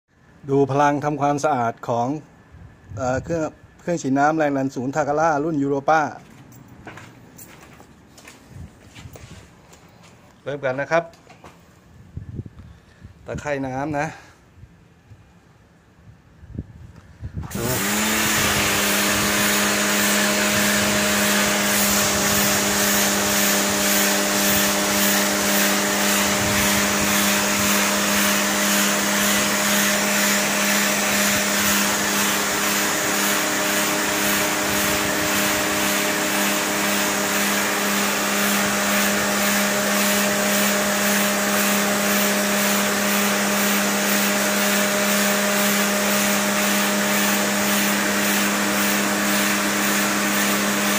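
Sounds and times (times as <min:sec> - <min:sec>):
pressure washer humming: 0:17.4 - 0:50.9
water jet hissing on concrete: 0:17.5 - 0:50.9.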